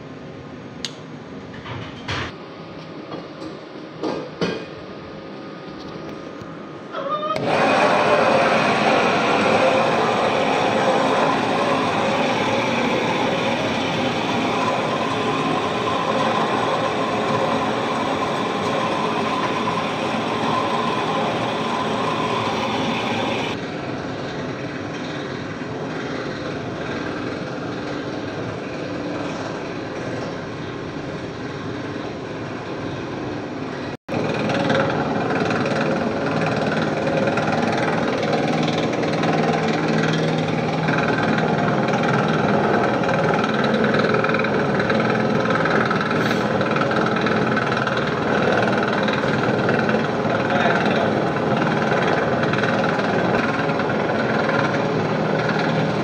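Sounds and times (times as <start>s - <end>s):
electric dough mixer running: 7.4s - 28.3s, 34.1s - 56.0s.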